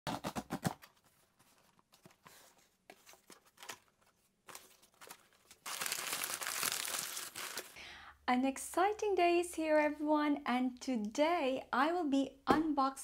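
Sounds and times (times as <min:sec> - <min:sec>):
cardboard rustling and tapping: 0:00.1 - 0:05.2.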